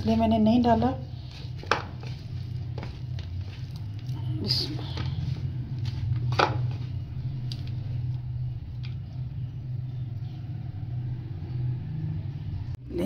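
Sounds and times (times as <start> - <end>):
hands kneading dough in bowl: 0.0 - 7.8
low mechanical hum: 0.0 - 13.0.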